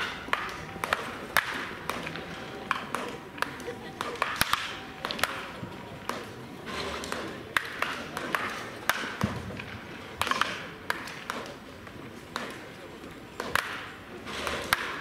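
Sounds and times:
murmur of voices: 0.0 - 14.8
wooden bat hitting baseballs: 0.0 - 15.0.

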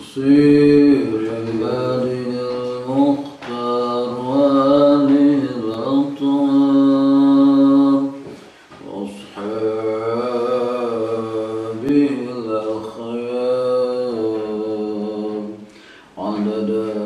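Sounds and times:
man chanting melodically: 0.0 - 17.0
man breathing: 15.6 - 16.2.

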